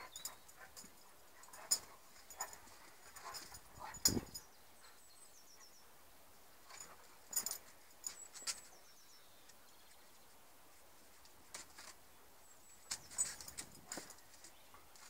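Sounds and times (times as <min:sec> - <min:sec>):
dogs play-fighting: 0:00.0 - 0:04.4.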